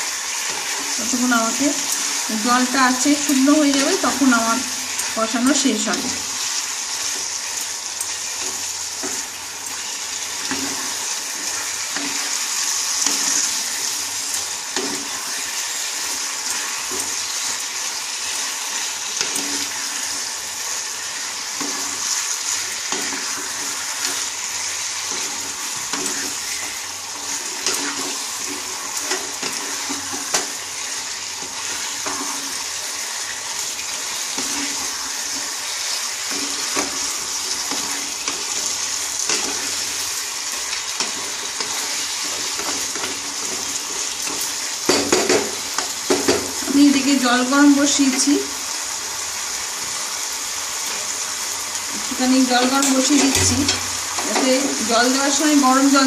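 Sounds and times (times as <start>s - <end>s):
chicken sizzling in a pan: 0.0s - 56.0s
wooden spatula scraping pan: 21.5s - 32.6s.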